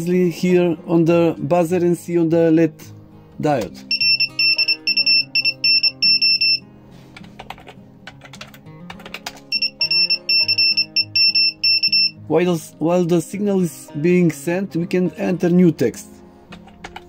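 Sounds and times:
buzzer beeping morse code: 0:03.9 - 0:06.6, 0:09.5 - 0:12.2
keyboard keys clacking: 0:07.2 - 0:12.1.

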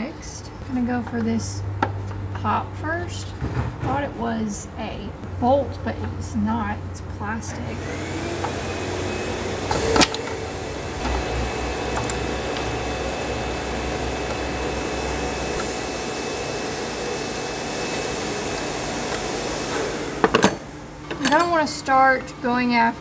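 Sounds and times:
low hum: 0:00.4 - 0:21.3
whirring machine: 0:07.5 - 0:21.6.

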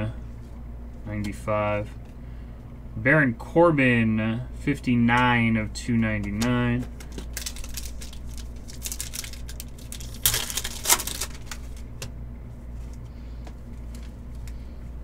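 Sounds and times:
steady low hum: 0:00.0 - 0:15.0
cards clicking and rustling: 0:06.3 - 0:12.1.

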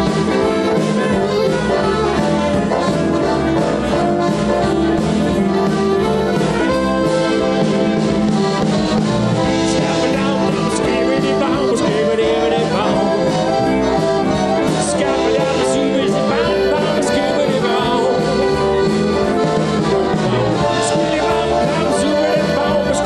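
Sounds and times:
accordions playing lively tune: 0:00.0 - 0:23.0
drum kit steady beat: 0:00.0 - 0:23.0.

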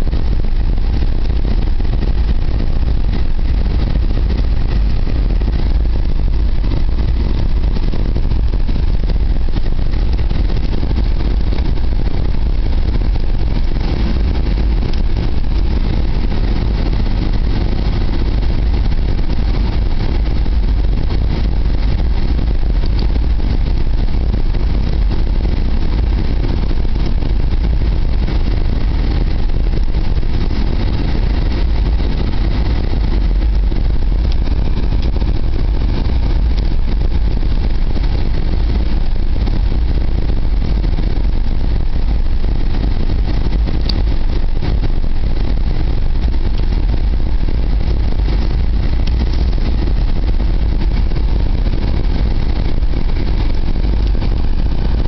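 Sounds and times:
car engine and road noise rumble: 0:00.0 - 0:55.0.

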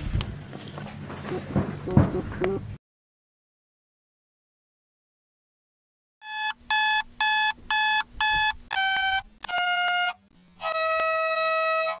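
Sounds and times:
descending alarm tones: 0:06.2 - 0:10.2
short alarm beeps: 0:06.2 - 0:10.2.

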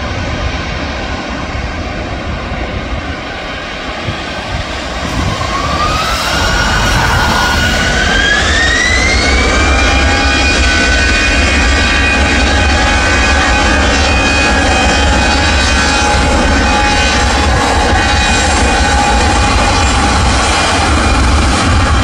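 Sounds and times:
jet engine whine: 0:00.0 - 0:22.0
loud low rumble: 0:00.0 - 0:22.0.

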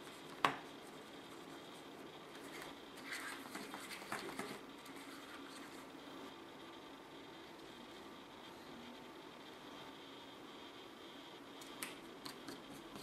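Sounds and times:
plastic spoon scraping and stirring: 0:02.4 - 0:05.9.

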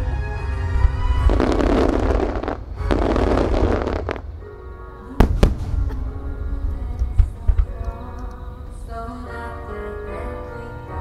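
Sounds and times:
music playing: 0:00.0 - 0:11.0
fireworks crackling: 0:00.7 - 0:04.5, 0:05.1 - 0:08.4.

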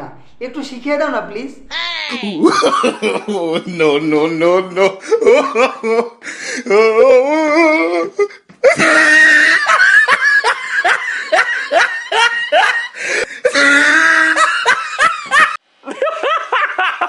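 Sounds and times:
person laughing heartily: 0:02.2 - 0:03.7, 0:05.0 - 0:17.0.

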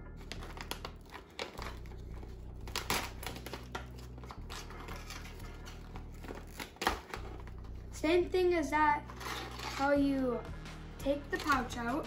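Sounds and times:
plastic pouch crinkling: 0:00.2 - 0:07.6
pouch ripping open: 0:00.2 - 0:07.6.

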